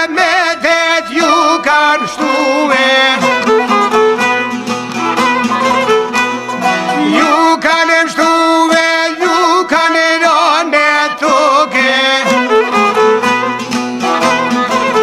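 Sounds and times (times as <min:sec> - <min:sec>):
plucked string accompaniment: 0:00.0 - 0:15.0
violin melody: 0:00.4 - 0:07.6, 0:10.8 - 0:15.0.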